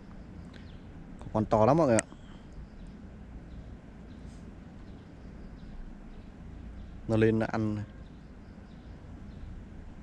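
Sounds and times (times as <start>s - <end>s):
faint high chirps: 0.0s - 9.6s.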